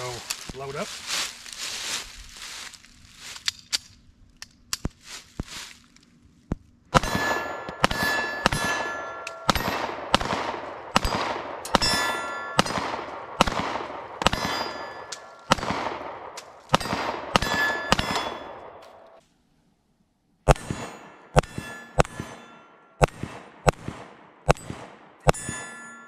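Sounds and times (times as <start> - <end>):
pistol shots: 6.9 - 18.8, 20.5 - 22.4, 23.0 - 25.7
steel target clang: 7.0 - 10.3, 10.9 - 13.6, 14.2 - 15.7, 16.4 - 19.0, 20.5 - 23.8, 24.5 - 26.0.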